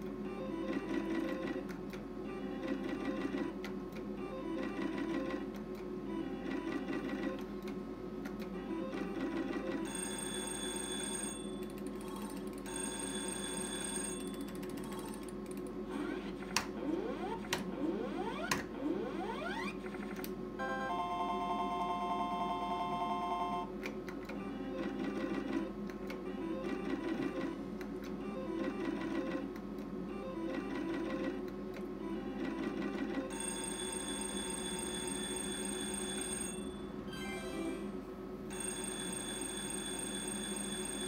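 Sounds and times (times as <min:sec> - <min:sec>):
slot machine beeping jingles: 0:08.7 - 0:11.8, 0:12.6 - 0:14.7, 0:20.6 - 0:23.7, 0:32.3 - 0:41.0
steady hum: 0:14.1 - 0:32.4.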